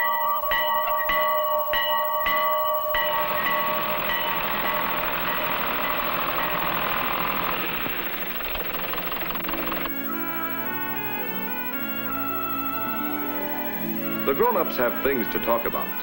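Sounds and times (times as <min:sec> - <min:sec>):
tractor engine running: 0:02.9 - 0:16.0.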